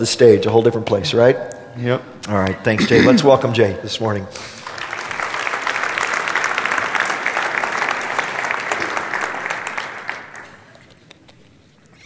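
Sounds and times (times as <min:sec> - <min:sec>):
congregation applauding: 0:04.4 - 0:10.9.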